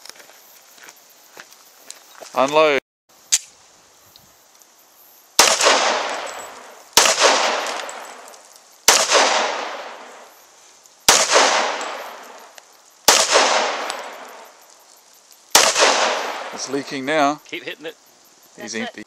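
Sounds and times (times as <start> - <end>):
gunshots with long echo: 5.4 - 8.3, 8.9 - 10.3, 11.1 - 12.5, 13.1 - 14.6, 15.5 - 16.9.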